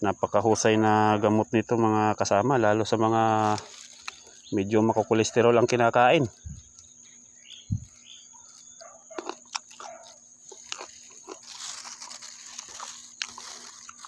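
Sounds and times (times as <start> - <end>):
crunching and chewing fruit: 2.4 - 14.0.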